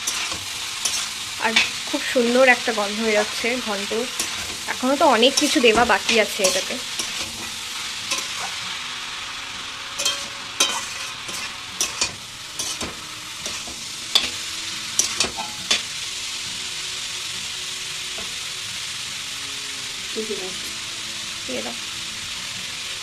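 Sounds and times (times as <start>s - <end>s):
spatula scraping a pan: 0.0s - 2.1s, 3.1s - 8.7s, 10.0s - 15.9s
curry sizzling in a pan: 0.0s - 23.0s.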